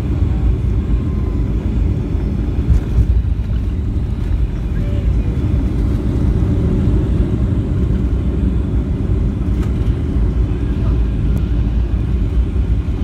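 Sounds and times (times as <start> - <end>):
airplane cabin rumble on runway: 0.0 - 13.0.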